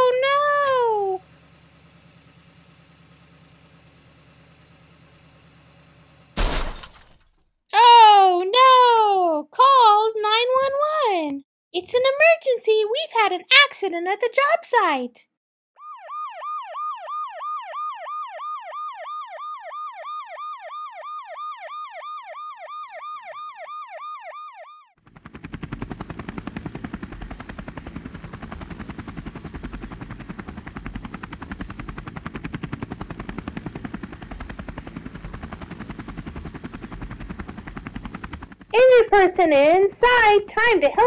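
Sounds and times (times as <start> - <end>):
toy helicopter rotor rattle: 0.0 - 2.6
toy electronic siren yelping: 15.8 - 24.9.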